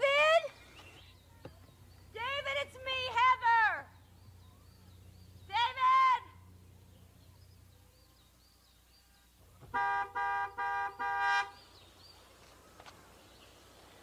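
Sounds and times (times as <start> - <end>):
car horn honking: 9.7 - 11.6.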